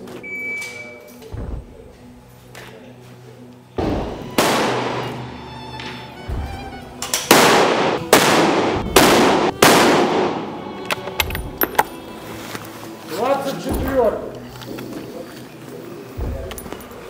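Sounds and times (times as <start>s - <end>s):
background music: 0.0s - 17.0s
rifle shots: 4.4s - 5.2s, 7.0s - 10.6s.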